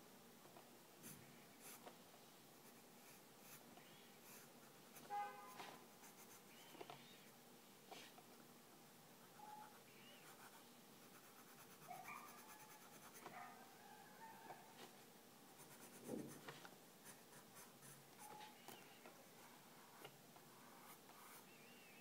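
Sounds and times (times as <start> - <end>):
pencil scratching on paper: 1.0 - 1.8, 4.2 - 7.3, 9.2 - 13.4, 15.6 - 18.5, 19.6 - 21.5.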